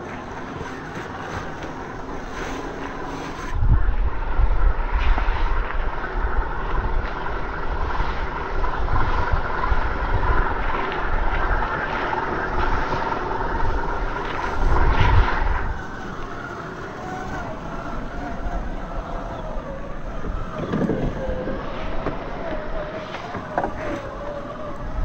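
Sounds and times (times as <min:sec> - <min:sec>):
low rumble: 0:00.0 - 0:25.0
electric motor whining: 0:06.3 - 0:25.0.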